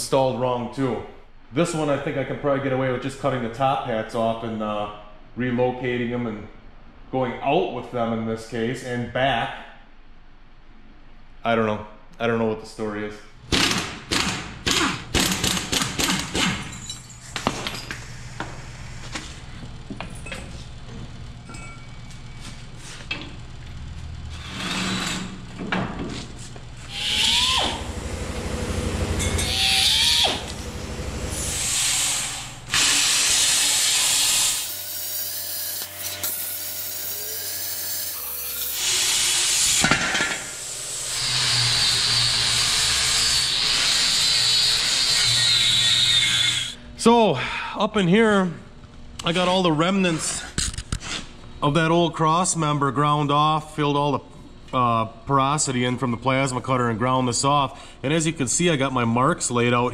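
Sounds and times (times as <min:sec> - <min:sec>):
power tools cutting and grinding steel: 0:24.3 - 0:25.5, 0:26.9 - 0:46.8.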